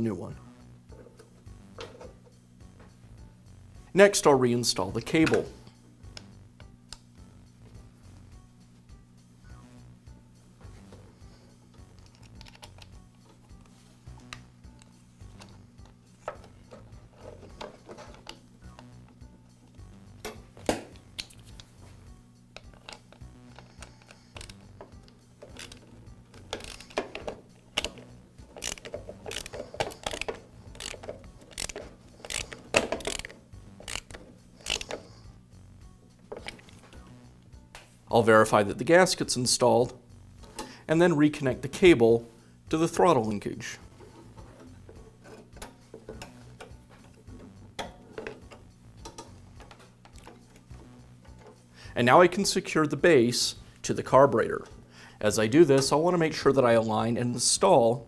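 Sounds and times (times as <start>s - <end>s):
screwdriver clicking and scraping: 12.0s - 14.4s, 22.6s - 35.2s, 36.3s - 36.9s, 44.0s - 50.7s
plastic and metal clicks: 26.4s - 35.0s.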